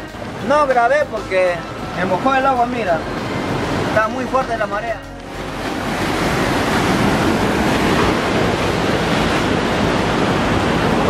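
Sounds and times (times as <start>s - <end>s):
surf breaking on rocky shore: 1.2s - 11.0s
wind buffeting microphone: 5.3s - 11.0s.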